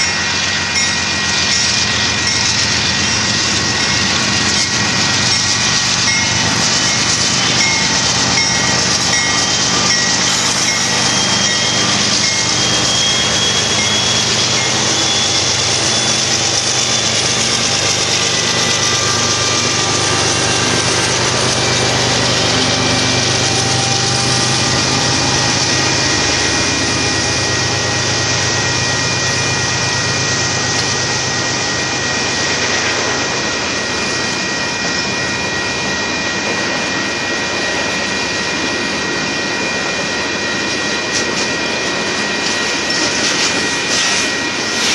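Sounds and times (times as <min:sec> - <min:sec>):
wheels squealing: 0:00.0 - 0:32.3
low diesel drone: 0:00.0 - 0:44.9
train wheels rumbling on rails: 0:00.0 - 0:44.9.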